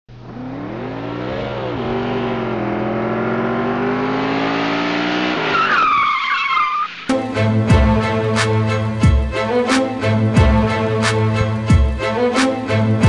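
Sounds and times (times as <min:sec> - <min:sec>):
race car engine revving: 0:00.1 - 0:05.9
tires squealing: 0:00.1 - 0:07.1.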